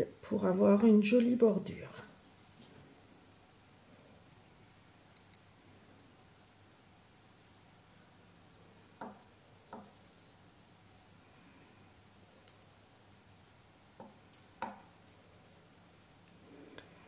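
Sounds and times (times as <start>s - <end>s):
knitting needles clicking: 5.0s - 5.5s, 9.0s - 16.9s.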